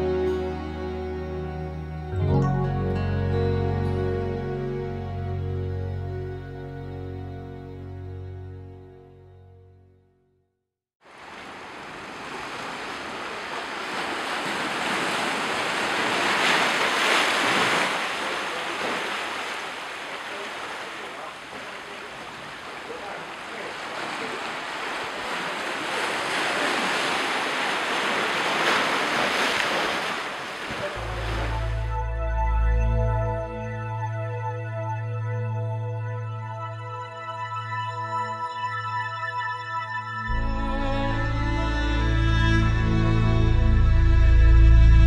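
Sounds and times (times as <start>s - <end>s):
waves breaking: 11.0s - 32.0s.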